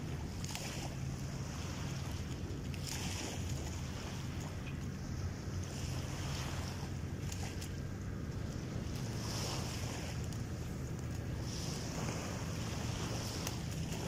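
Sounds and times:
low steady hum: 0.0 - 14.0
water lapping at shoreline: 0.0 - 14.0
wind on microphone: 0.0 - 14.0.

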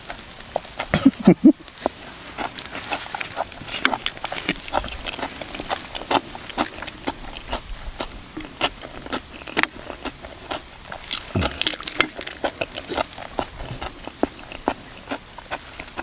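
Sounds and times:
lip-smacking: 0.0 - 16.0
person chewing crunchy food: 0.0 - 16.0.

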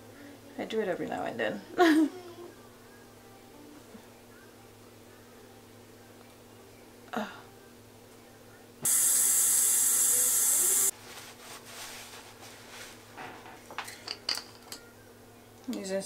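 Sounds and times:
towel rustling on face: 10.9 - 13.1.

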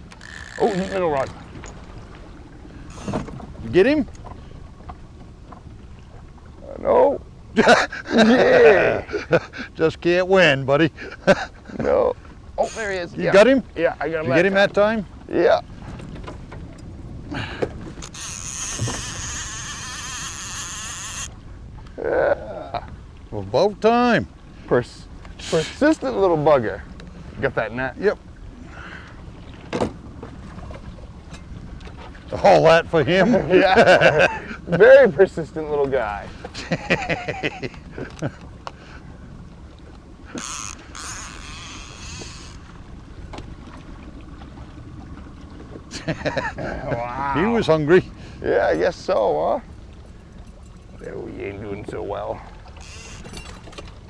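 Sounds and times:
boat motor drone: 0.0 - 54.0
fishing reel whirring: 0.1 - 1.2, 2.8 - 3.2, 18.0 - 21.4, 40.3 - 42.8, 52.7 - 53.8.

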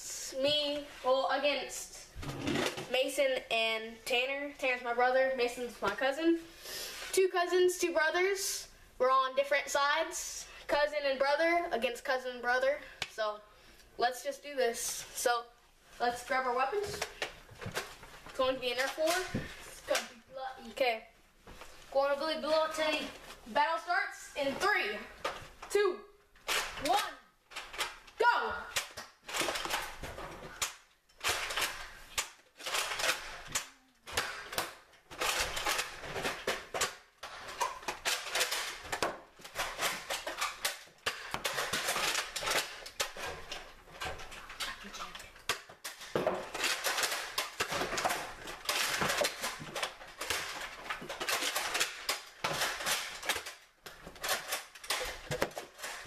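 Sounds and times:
darts clattering: 26.4 - 44.8, 45.4 - 56.0.

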